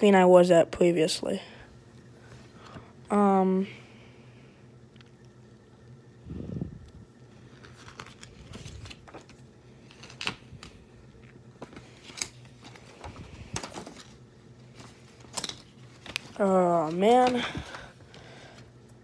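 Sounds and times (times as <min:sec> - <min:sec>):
paper pages rustling: 0:07.4 - 0:18.6.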